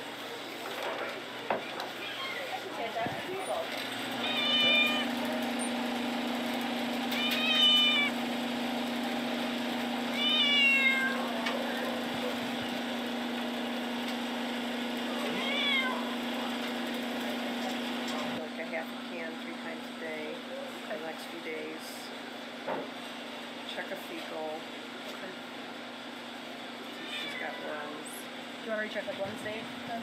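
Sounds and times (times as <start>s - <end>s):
cat meowing: 2.0s - 2.6s, 4.2s - 5.2s, 7.1s - 8.2s, 10.1s - 11.9s, 15.2s - 16.2s, 26.9s - 27.8s.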